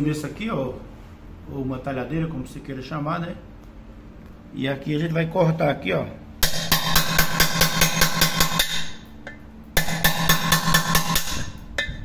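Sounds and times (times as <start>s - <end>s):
hammer tapping on chisel: 6.4s - 12.0s.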